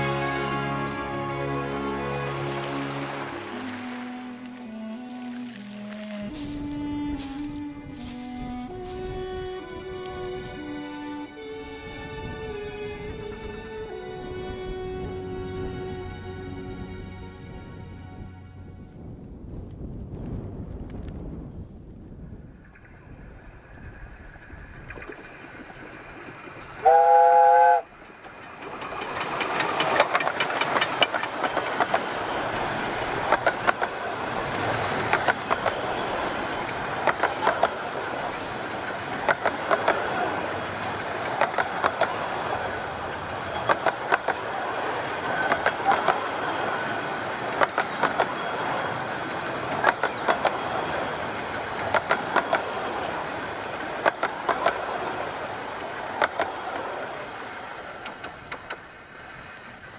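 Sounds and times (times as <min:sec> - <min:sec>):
steam train whistle: 0:00.0 - 0:11.3, 0:26.8 - 0:27.9
train running past: 0:00.0 - 0:19.7, 0:22.5 - 0:59.9
wheels clicking over rail joints: 0:23.8 - 0:59.9.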